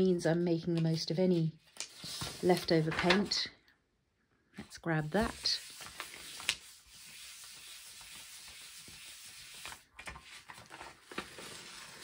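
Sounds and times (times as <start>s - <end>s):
paper rustling: 0.7s - 3.4s, 5.2s - 12.0s
hand rubbing paper: 5.2s - 12.0s.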